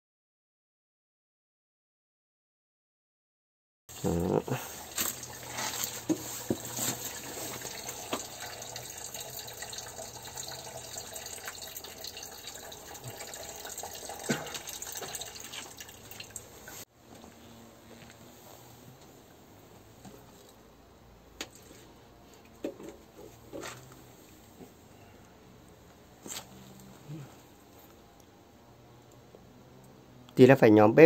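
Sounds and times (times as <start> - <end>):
liquid pouring from bottle: 5.1 - 16.8.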